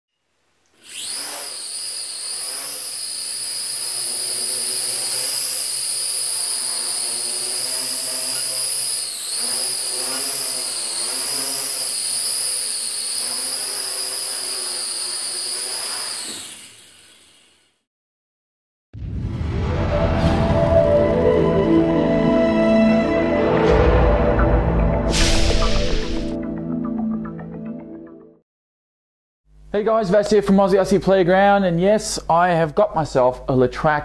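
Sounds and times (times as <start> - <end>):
drone motors whining: 0.8 - 17.8, 24.2 - 26.4.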